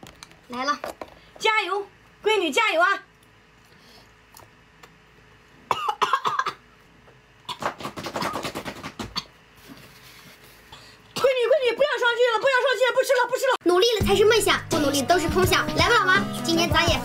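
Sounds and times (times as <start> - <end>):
woman coughing harshly: 5.7 - 6.6, 10.7 - 11.5.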